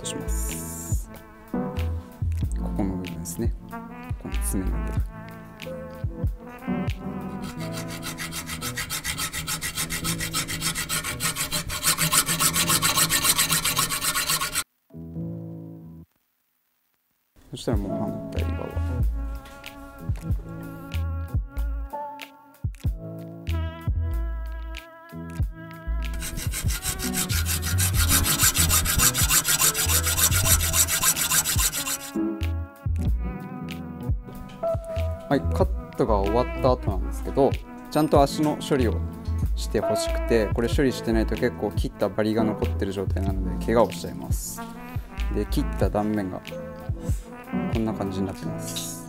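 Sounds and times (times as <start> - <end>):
hacksaw cutting metal: 7.4 - 14.6, 26.2 - 32.2.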